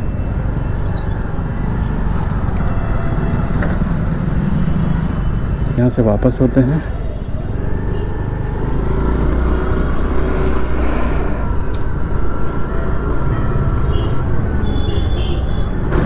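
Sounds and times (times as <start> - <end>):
motorcycle engine: 6.5 - 16.0.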